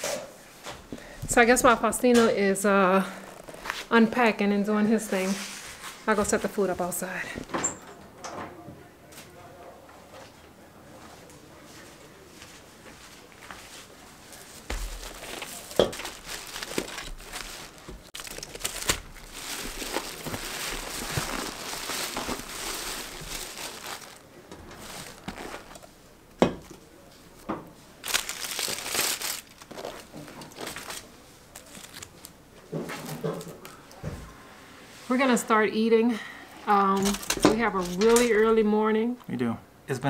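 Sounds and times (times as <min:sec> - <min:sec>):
plastic bags crinkling and rustling: 0:14.2 - 0:26.0, 0:26.9 - 0:33.9, 0:36.9 - 0:38.4.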